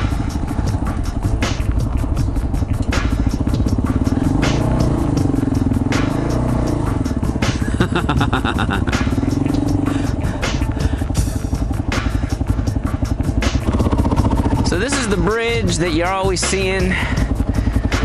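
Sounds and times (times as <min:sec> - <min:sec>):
motorcycle engine at low speed: 0:00.0 - 0:18.0.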